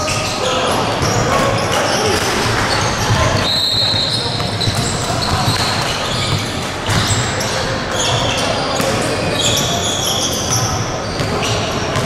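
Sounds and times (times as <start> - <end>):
sneaker squeaks on court: 0.0 - 12.0
basketball bouncing: 4.3 - 7.4.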